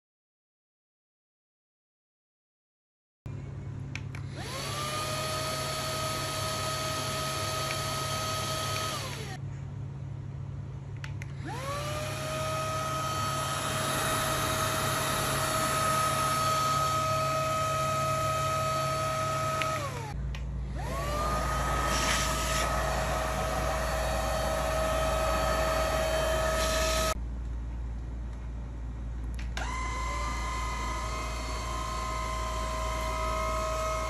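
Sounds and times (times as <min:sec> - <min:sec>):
vacuum motor whine: 0:04.2 - 0:09.4, 0:11.4 - 0:27.2, 0:29.4 - 0:34.0
airflow rushing: 0:13.0 - 0:17.2, 0:20.6 - 0:27.2.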